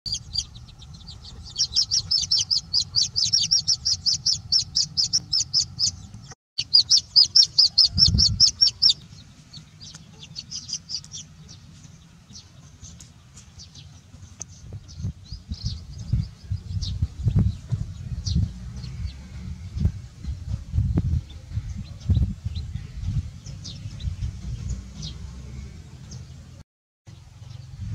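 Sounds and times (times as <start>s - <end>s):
chicks peeping: 0.1s - 26.4s
low rumble: 14.2s - 26.6s.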